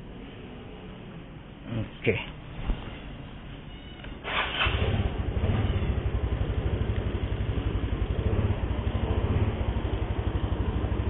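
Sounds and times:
scooter engine idling: 4.3 - 11.0.

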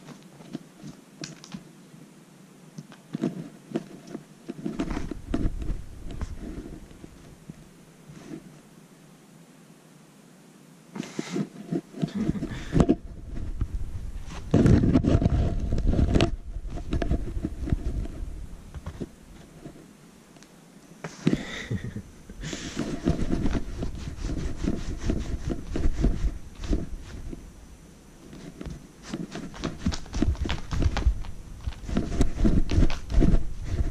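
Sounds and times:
microphone handling bumps: 11.2 - 19.8, 21.0 - 27.5, 28.3 - 33.9
cat toy scraping on tatami mats: 22.4 - 27.4, 28.2 - 33.9.

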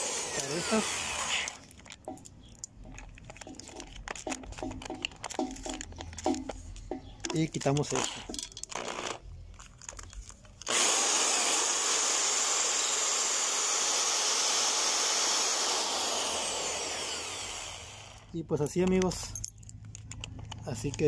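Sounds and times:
power drill running: 0.0 - 1.6, 10.7 - 18.3.

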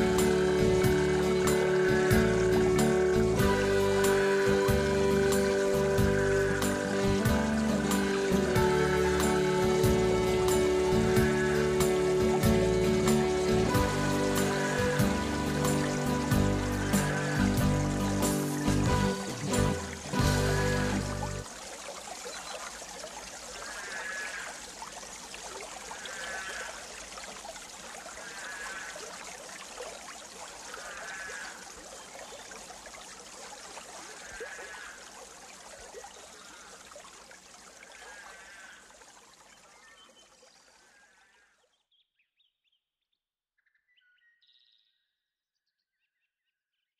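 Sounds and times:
short wavering call: 0.0 - 21.4
running water hiss: 0.0 - 41.4.

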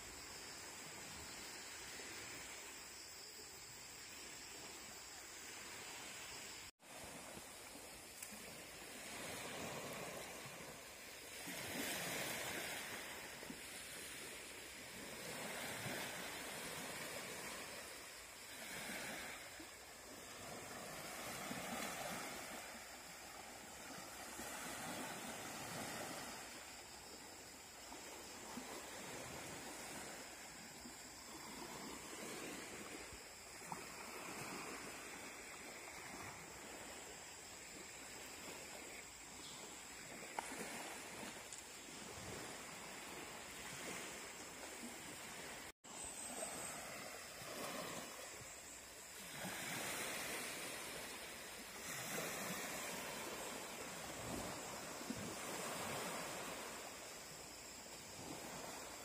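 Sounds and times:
small waves washing onto beach: 0.0 - 59.0.

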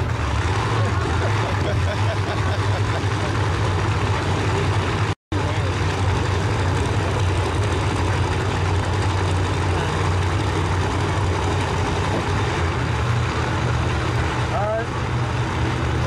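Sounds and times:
drag car engine idling: 0.0 - 16.0.

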